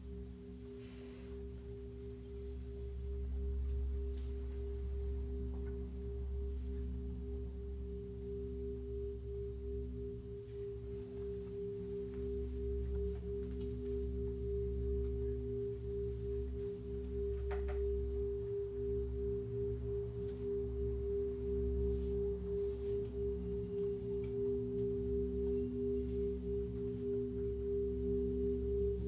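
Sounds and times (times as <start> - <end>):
drone of steady pitched tones: 0.0 - 29.0
low hum: 0.0 - 29.0.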